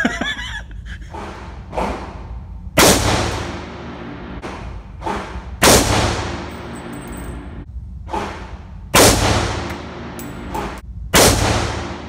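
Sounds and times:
rifle shots echoing indoors: 2.8 - 7.6, 8.2 - 12.0.

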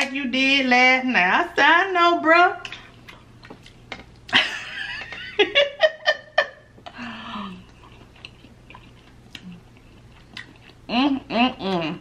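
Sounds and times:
woman laughing: 4.3 - 7.4
woman humming: 10.9 - 12.0.

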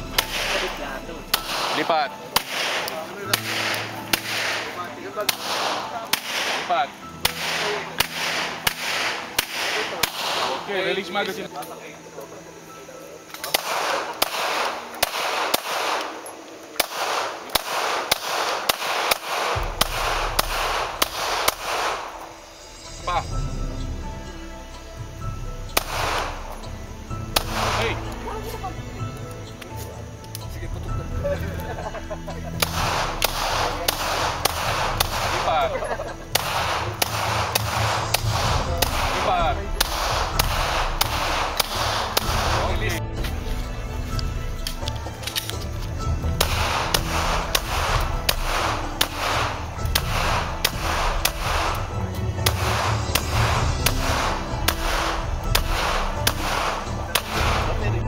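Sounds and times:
pistol shots echoing: 0.0 - 10.8, 13.3 - 22.4, 25.7 - 26.6, 27.3 - 28.1, 32.6 - 42.9, 46.2 - 57.9.

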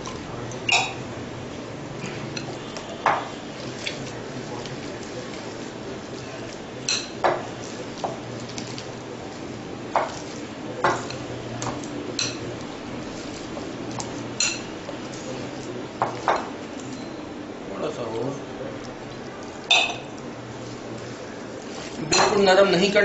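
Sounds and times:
batter being mixed by hand: 0.0 - 23.0
clinks against glass bowl: 0.6 - 1.0, 19.7 - 20.1.

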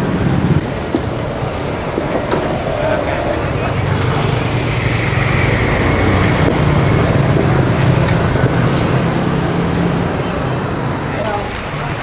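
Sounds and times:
gas burners roaring: 0.0 - 12.0.

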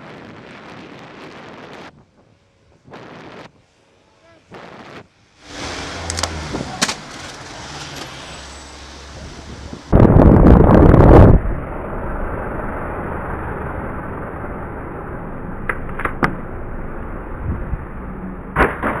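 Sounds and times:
wind buffeting microphone: 9.1 - 11.6.

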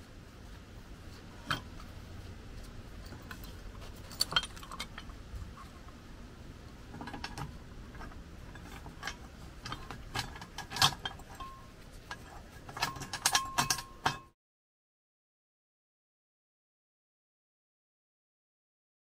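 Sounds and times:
metal parts clinking on steel: 3.0 - 5.1, 8.5 - 14.3.

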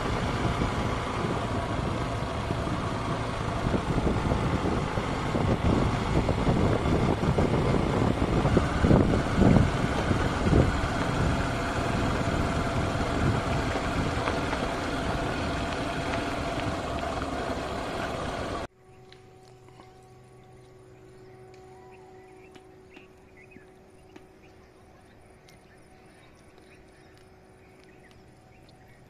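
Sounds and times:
wind rushing over microphone: 0.0 - 17.3
vehicle bumps: 0.0 - 18.6
vehicle engine running: 0.0 - 29.0.

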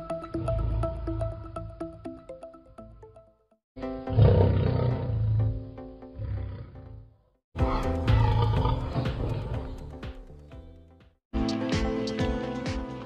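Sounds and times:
background music: 0.0 - 13.0
lion roaring: 4.1 - 7.1, 8.0 - 9.8.

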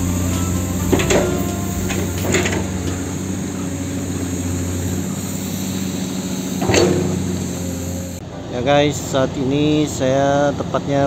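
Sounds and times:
excavator diesel engine running: 0.0 - 11.0.

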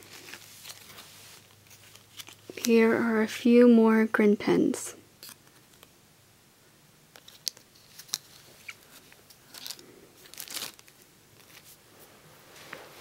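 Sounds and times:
plastic crinkling: 0.0 - 2.9, 7.1 - 11.8.

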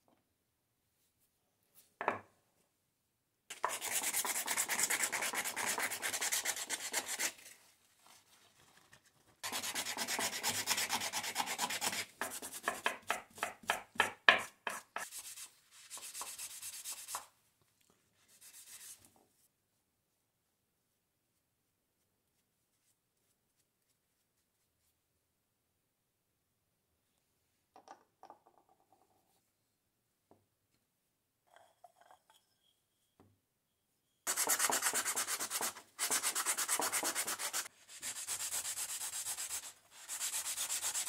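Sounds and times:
sandpaper rubbing on wood: 34.3 - 41.0.

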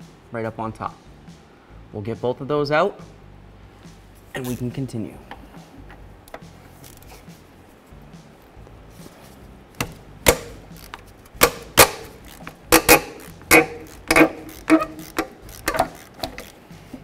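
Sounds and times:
ratchet clicking: 9.8 - 17.0.

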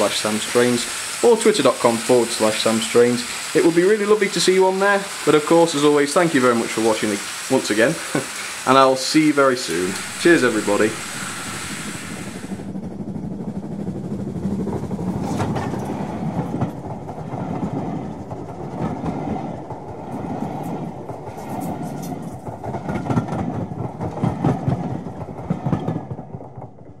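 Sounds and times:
model train rumbling: 0.0 - 27.0
wheels clicking over rail joints: 13.9 - 27.0.

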